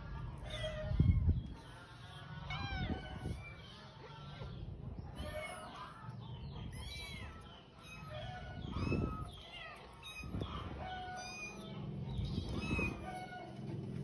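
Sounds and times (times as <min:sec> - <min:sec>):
kittens mewing: 0:00.4 - 0:04.2, 0:05.1 - 0:13.7.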